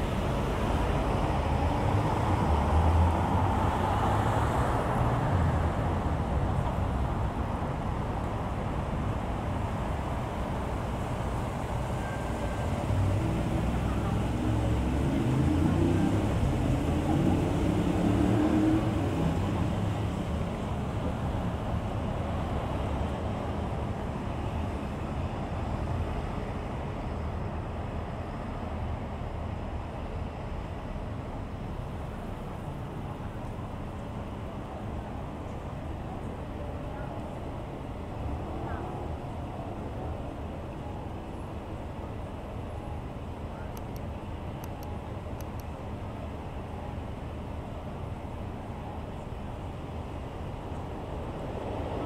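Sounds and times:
road and tyre noise: 0.0 - 52.0
vehicle engine accelerating: 12.9 - 20.3.

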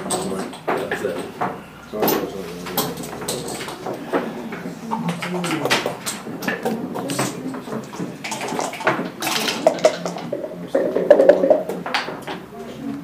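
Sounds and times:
dice rattling in cup: 8.2 - 11.6.

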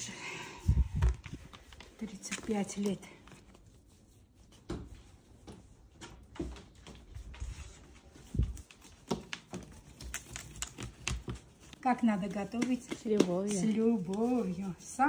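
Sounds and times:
hands pressing dough on wooden board: 8.8 - 14.7.

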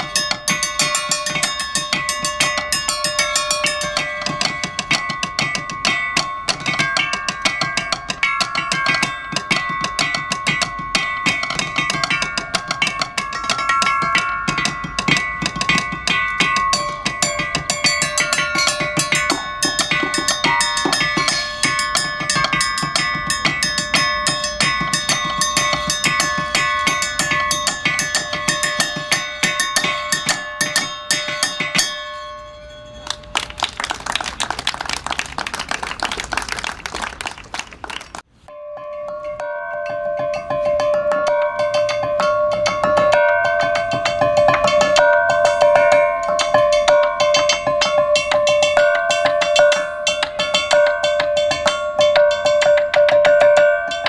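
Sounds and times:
xylophone playing: 0.0 - 35.0
audience applause: 33.1 - 38.2.

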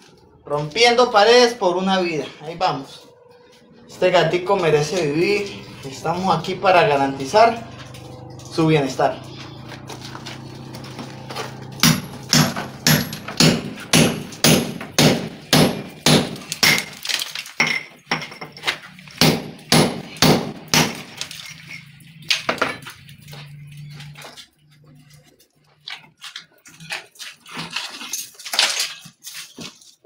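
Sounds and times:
hammer striking chisel: 11.8 - 17.0, 19.2 - 21.2.

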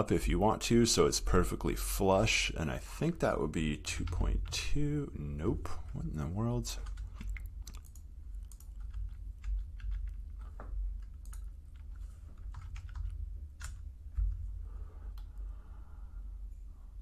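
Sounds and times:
steady low hum: 0.0 - 17.0
keyboard keys tapping: 6.8 - 14.4.

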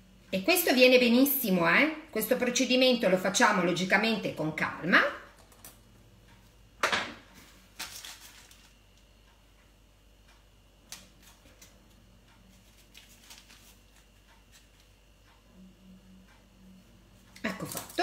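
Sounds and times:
baking paper rustling: 7.4 - 9.0, 10.9 - 15.0.

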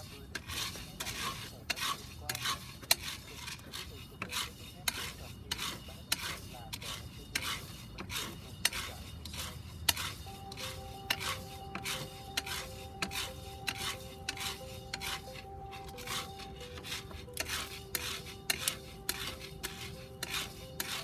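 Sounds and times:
coffee beans rattling in a pot: 0.0 - 10.2.

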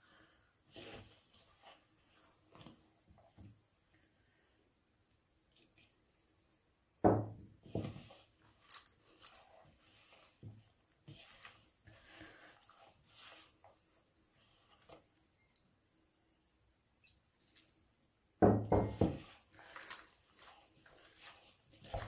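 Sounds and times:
dough squelching: 0.2 - 3.7, 7.6 - 15.5, 17.0 - 22.0.

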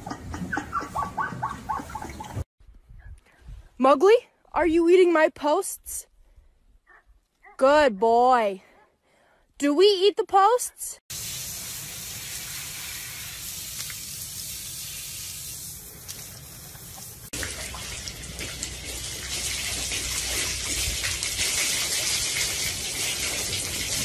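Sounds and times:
hose spray hissing: 11.1 - 17.3
water spattering on floor: 11.1 - 24.0.

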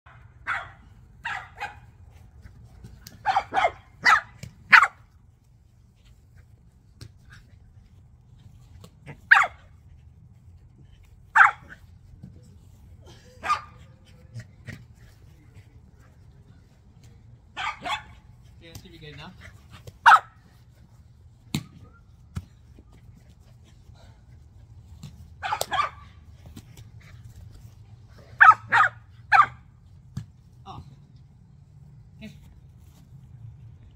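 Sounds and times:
puppy barking: 0.4 - 1.8, 3.2 - 5.0, 9.3 - 9.6, 11.4 - 11.8, 13.4 - 13.8, 17.6 - 18.2, 20.0 - 20.3, 25.4 - 26.1, 28.4 - 29.6.

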